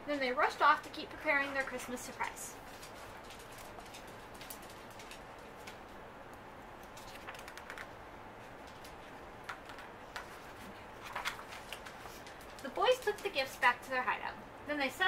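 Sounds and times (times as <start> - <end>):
book pages turning: 6.8 - 8.0, 8.6 - 13.3.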